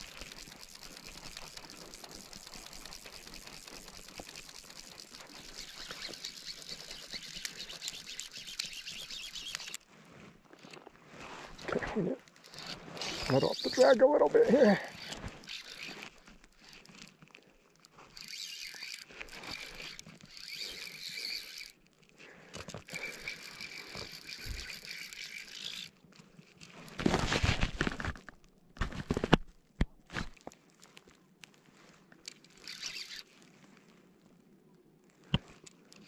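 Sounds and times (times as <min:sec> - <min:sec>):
fly reel drag buzzing: 0:00.0 - 0:09.8, 0:11.4 - 0:17.1, 0:18.1 - 0:21.8, 0:22.8 - 0:26.0, 0:32.3 - 0:33.4.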